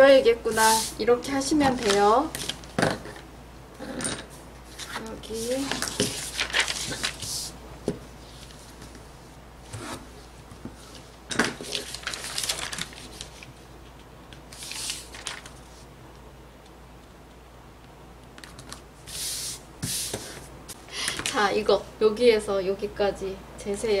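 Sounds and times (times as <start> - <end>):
paper rustling and crinkling: 1.5 - 2.7, 4.8 - 7.6, 10.8 - 13.6, 14.5 - 15.9.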